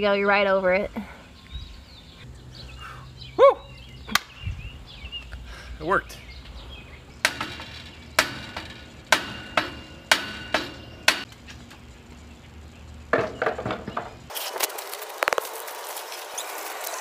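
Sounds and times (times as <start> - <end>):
hammer striking metal pole: 7.2 - 11.3.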